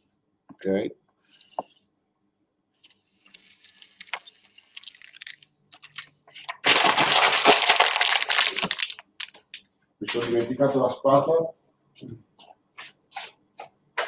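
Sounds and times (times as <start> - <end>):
glue sheet peeling: 2.8 - 6.1
paper crinkling: 2.8 - 9.6.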